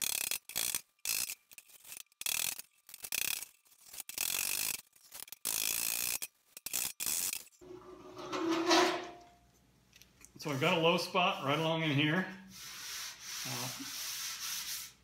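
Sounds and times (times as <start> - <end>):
scrape with faint squeal: 10.4 - 15.0.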